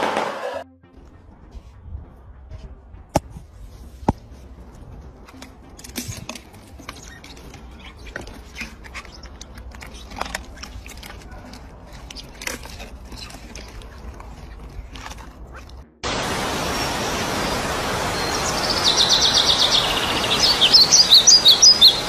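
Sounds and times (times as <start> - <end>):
steady low rumble: 0.9 - 5.8
hippopotamus chewing: 3.6 - 16.0.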